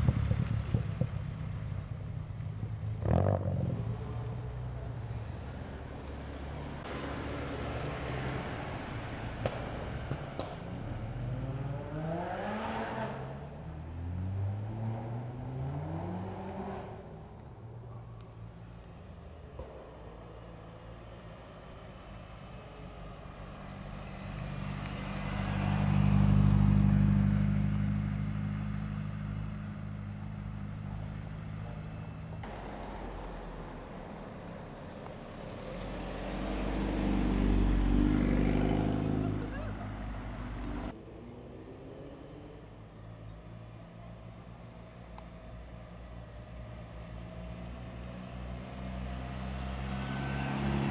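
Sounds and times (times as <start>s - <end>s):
car engine hum: 0.0s - 50.9s
engine revving up: 11.2s - 17.0s, 35.7s - 42.7s, 48.2s - 50.9s.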